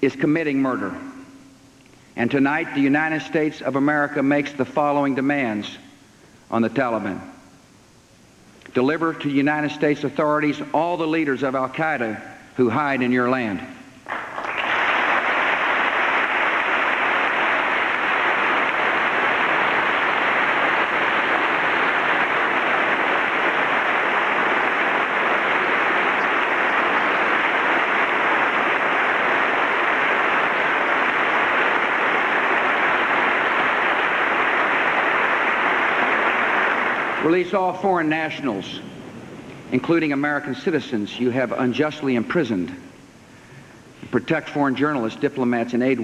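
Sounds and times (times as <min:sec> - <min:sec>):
large audience applauding: 0:14.1 - 0:37.7.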